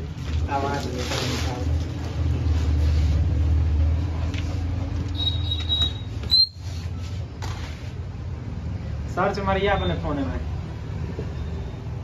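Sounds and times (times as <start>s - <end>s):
short high squeak: 5.1s - 7.0s.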